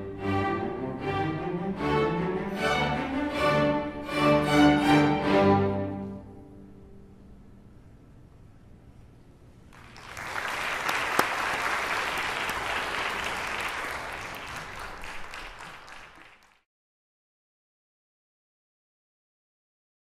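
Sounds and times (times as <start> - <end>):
audience applauding: 9.7 - 16.6
sharp clap: 9.7 - 16.6.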